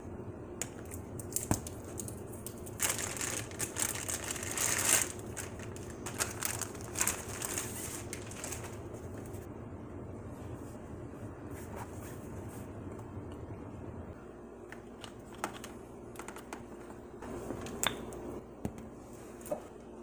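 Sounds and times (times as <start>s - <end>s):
plastic packaging crinkling: 1.2s - 9.4s.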